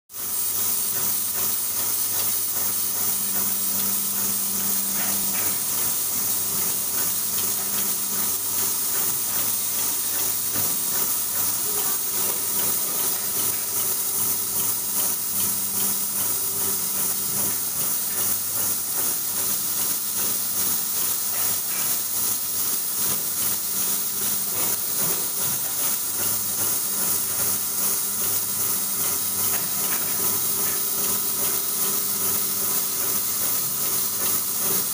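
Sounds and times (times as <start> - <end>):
machine high hiss: 0.2 - 34.9
bowl feeders humming: 2.2 - 19.0.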